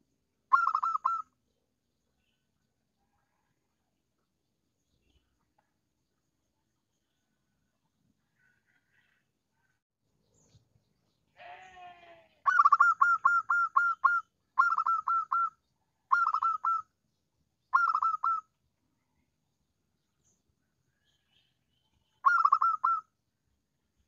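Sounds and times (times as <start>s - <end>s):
dove cooing: 0.5s - 1.3s, 12.5s - 15.5s, 16.1s - 16.8s, 17.8s - 18.4s, 22.2s - 23.0s.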